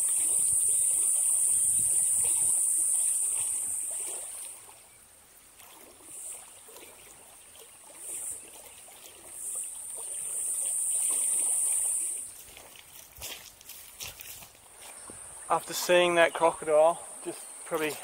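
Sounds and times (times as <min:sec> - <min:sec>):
insects shrilling: 0:00.0 - 0:04.4, 0:09.4 - 0:12.4
faint water sounds: 0:00.0 - 0:18.0.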